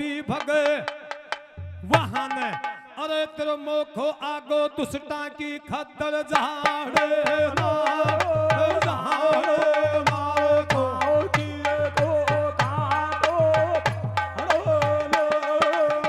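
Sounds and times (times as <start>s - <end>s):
man singing: 0.0s - 16.0s
hand drum beat: 7.6s - 16.0s.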